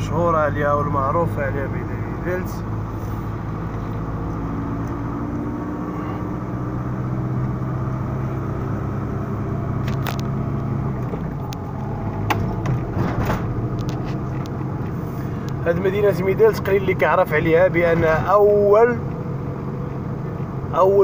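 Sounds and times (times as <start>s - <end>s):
car engine: 0.0s - 21.0s
road noise: 0.0s - 21.0s.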